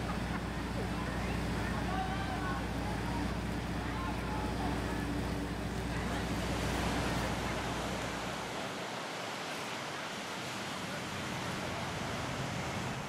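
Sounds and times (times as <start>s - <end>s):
ocean surf: 0.0s - 13.0s
wind: 0.0s - 13.0s.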